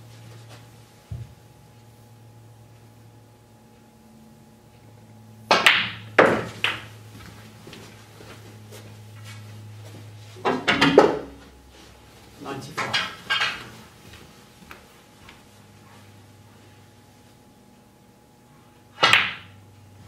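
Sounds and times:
faint steady hum: 0.0s - 20.0s
cue striking ball: 5.5s - 6.9s, 10.4s - 11.4s, 12.8s - 13.7s, 19.0s - 19.6s
snooker balls knocking: 5.5s - 6.9s, 10.4s - 11.4s, 12.8s - 13.7s, 19.0s - 19.6s.

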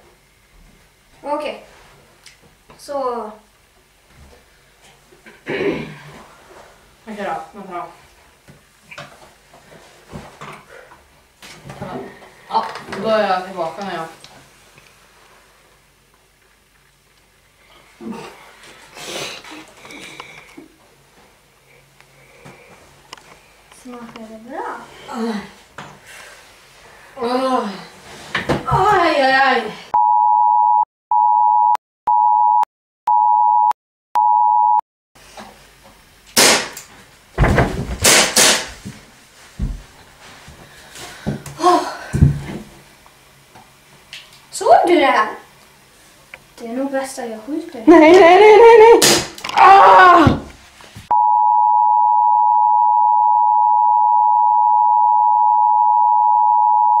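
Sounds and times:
person crying out: 47.9s - 50.4s
steady high beep tone: 51.1s - 57.0s.

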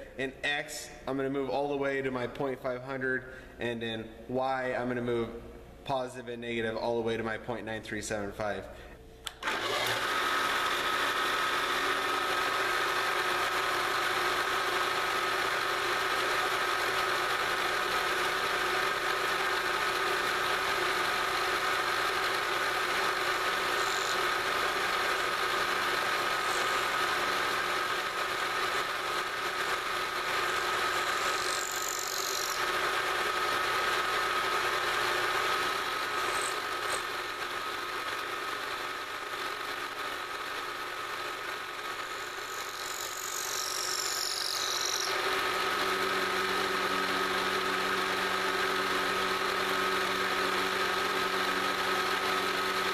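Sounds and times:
milling machine spindle running: 9.3s - 52.9s
high cutting screeches: 23.6s - 24.4s, 31.0s - 32.6s, 36.2s - 37.2s, 42.4s - 45.1s.

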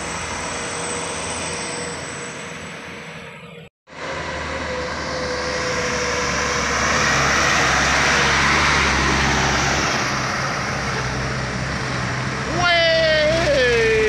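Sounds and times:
truck engine at full throttle: 3.9s - 14.0s.

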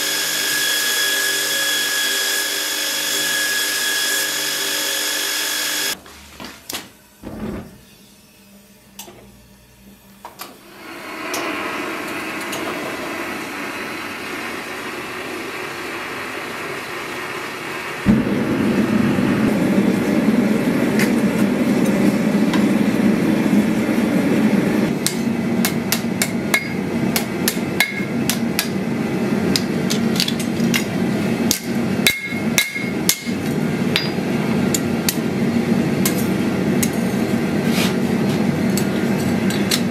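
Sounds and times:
belt grinder winding down: 0.0s - 6.0s
gas forge burner rushing: 10.3s - 39.9s
hammer striking steel on anvil: 24.9s - 28.8s, 31.5s - 35.2s.

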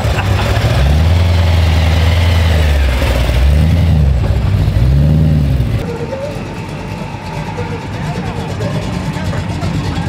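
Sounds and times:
car engine exhaust rumbling: 0.0s - 6.0s.

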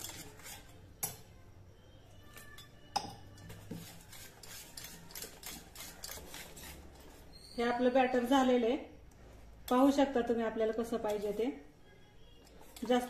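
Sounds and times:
whisk scraping a steel bowl: 0.0s - 0.8s, 3.4s - 7.6s.

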